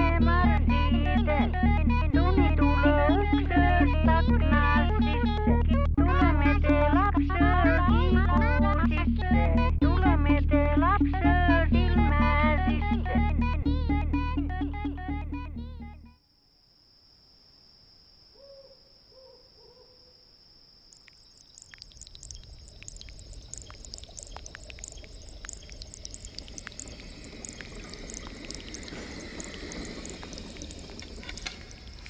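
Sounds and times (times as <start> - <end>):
liquid bubbling and hissing: 21.3 - 32.0.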